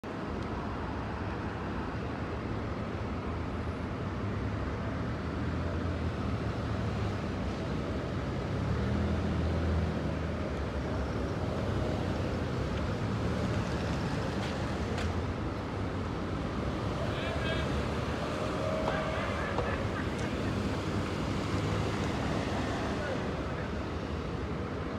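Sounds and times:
bus engine idling: 14.1s - 24.9s.

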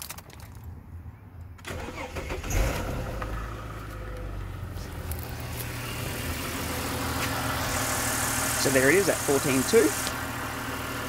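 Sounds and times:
car starter cranking: 1.6s - 4.5s
car engine idling: 1.7s - 11.0s.

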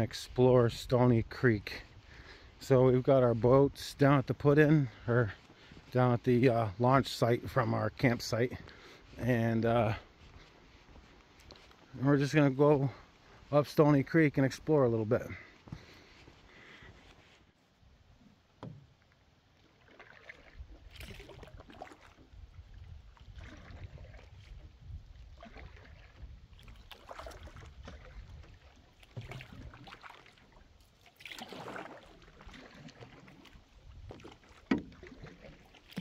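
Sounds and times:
paddle splashing in water: 18.5s - 36.0s.

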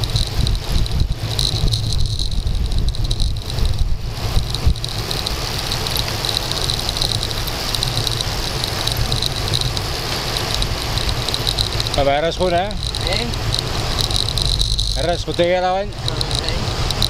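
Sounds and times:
tyres rumbling on asphalt: 0.0s - 17.0s
wind buffeting microphone: 0.0s - 17.0s
high buzz: 10.3s - 17.0s.

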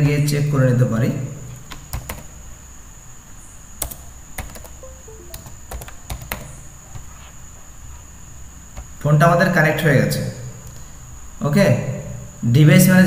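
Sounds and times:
keyboard keys clicking: 3.8s - 6.5s
faint falling tones: 4.8s - 5.8s
faint high whine: 4.8s - 7.3s.

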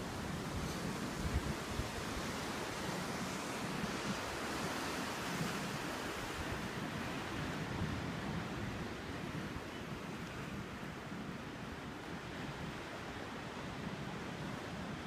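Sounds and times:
ocean surf breaking on rocks: 0.0s - 8.8s
wind rumbling on microphone: 0.0s - 15.0s.

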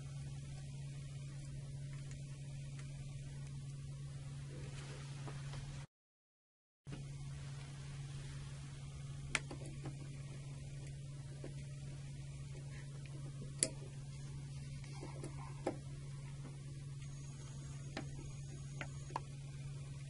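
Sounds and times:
steady low hum: 0.0s - 5.9s, 6.9s - 20.0s.

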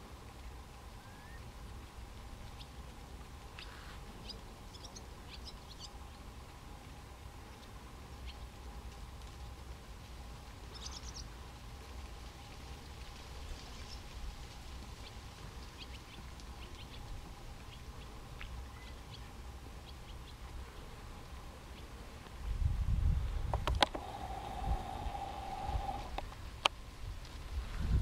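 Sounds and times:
faint low rumble: 0.0s - 28.0s
small birds chirping: 1.0s - 1.6s, 2.3s - 6.5s, 7.4s - 8.7s, 10.7s - 11.4s, 13.4s - 14.1s, 14.9s - 22.0s, 23.8s - 26.2s
thin steady hum: 15.4s - 27.2s.

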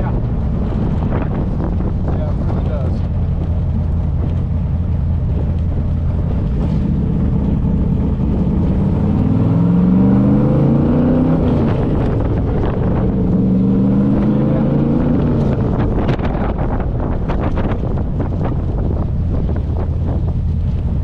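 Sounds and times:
car engine droning: 0.0s - 21.0s.

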